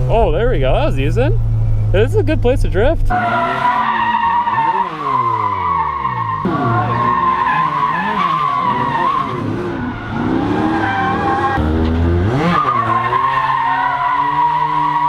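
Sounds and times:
car engine revving: 0.0s - 15.0s
tyres squealing: 3.1s - 11.6s, 12.3s - 15.0s.

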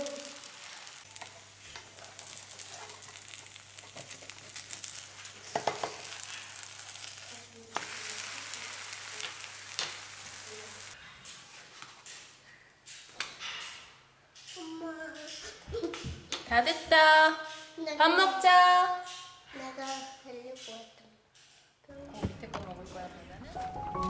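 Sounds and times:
omelette sizzling in oil: 0.0s - 11.4s.

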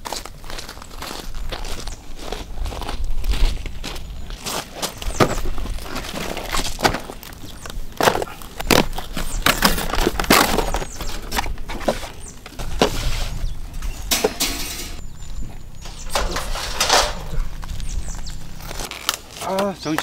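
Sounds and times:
camp gear knocks and clatters: 4.6s - 17.7s
rustling: 15.6s - 19.6s.

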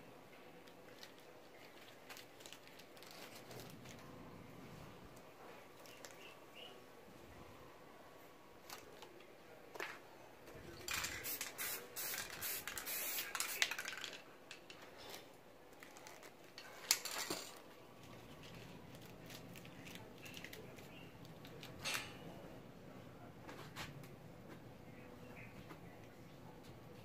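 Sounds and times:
spray paint can hissing: 10.9s - 14.1s.

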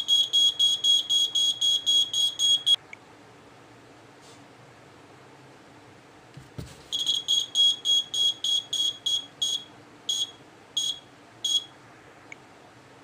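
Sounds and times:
electronic buzzer beeps: 0.0s - 2.8s, 7.0s - 11.7s.

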